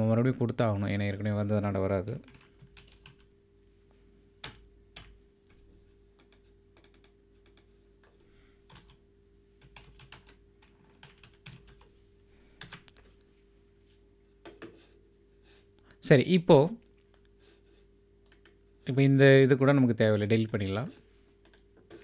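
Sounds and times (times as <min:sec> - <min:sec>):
typing on a keyboard: 0:02.3 - 0:03.3, 0:06.2 - 0:07.7, 0:08.7 - 0:09.0, 0:09.6 - 0:11.9, 0:12.6 - 0:13.0.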